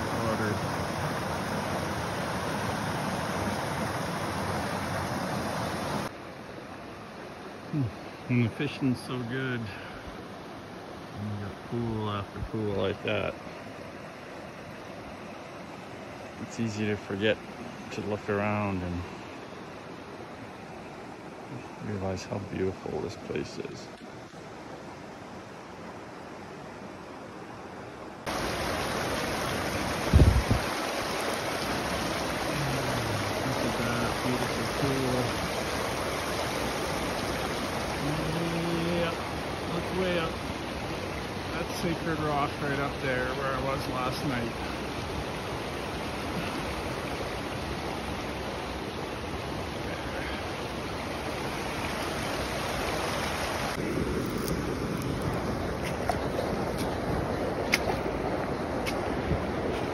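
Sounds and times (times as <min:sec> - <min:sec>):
water rushing over rocks: 0:00.0 - 0:24.8, 0:28.2 - 0:59.9
cascade pouring into pool: 0:28.3 - 0:40.3.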